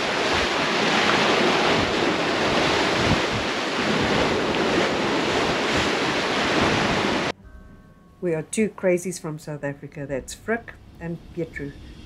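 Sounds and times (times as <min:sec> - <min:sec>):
wind buffeting microphone: 0:00.0 - 0:07.3
rough sea rushing: 0:00.0 - 0:07.4.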